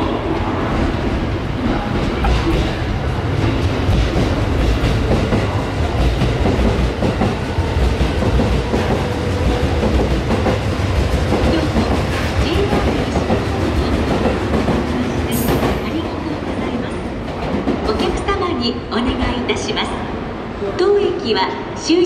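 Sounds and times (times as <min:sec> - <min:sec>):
train wheels rumbling on rails: 0:00.0 - 0:20.2
clickety-clack over track joints: 0:03.4 - 0:18.3.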